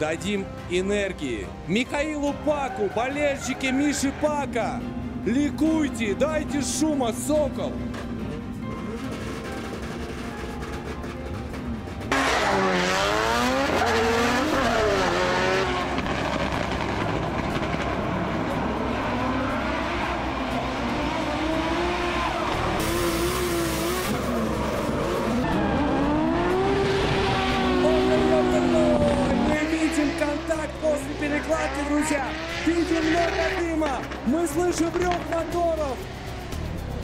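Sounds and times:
tyres screeching: 0:02.5 - 0:04.7, 0:12.1 - 0:15.8
car engines revving hard: 0:11.4 - 0:36.7.

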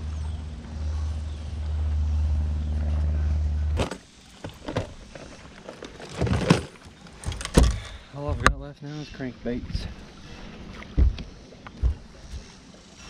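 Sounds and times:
electric boat motor humming: 0:00.0 - 0:06.0.

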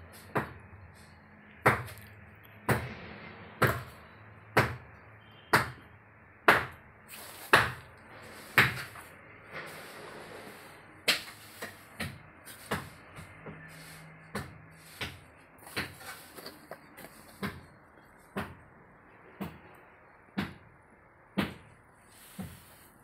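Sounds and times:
hammer strikes: 0:00.1 - 0:00.7, 0:01.6 - 0:03.0, 0:03.6 - 0:04.0, 0:04.6 - 0:09.1, 0:11.0 - 0:17.8, 0:20.4 - 0:20.7.

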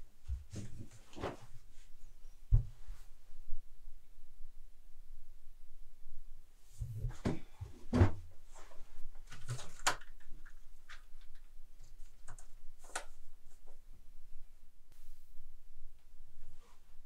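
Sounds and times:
headphones handling clicks and rustles: 0:08.8 - 0:13.8.

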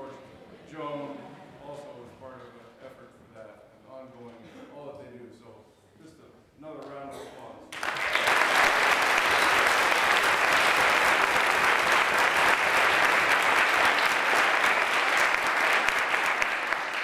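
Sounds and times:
audience applauding: 0:07.7 - 0:17.0.

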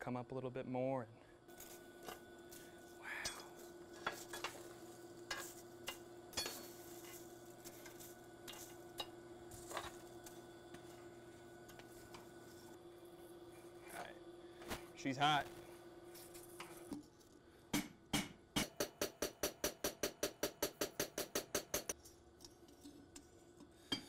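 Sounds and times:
steady hum: 0:00.0 - 0:24.0
coal fire crackling: 0:01.5 - 0:16.9
blade and tongs clicking and scraping: 0:03.2 - 0:10.9.

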